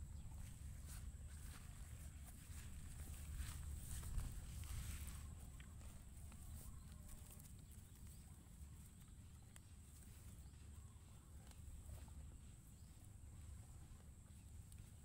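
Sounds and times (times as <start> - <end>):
faint low rumble: 0.0 - 15.0
soft ticks: 9.5 - 9.7.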